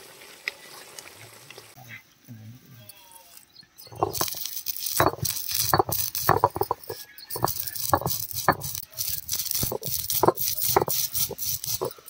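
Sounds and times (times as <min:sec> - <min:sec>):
stone knocking on stone: 0:03.9 - 0:04.4, 0:05.0 - 0:08.9, 0:09.6 - 0:12.0
seeds cracking and crunching: 0:03.9 - 0:12.0.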